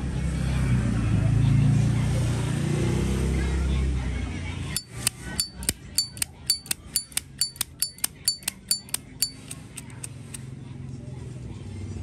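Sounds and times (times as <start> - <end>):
lighter lid metallic clicks: 4.8 - 10.4.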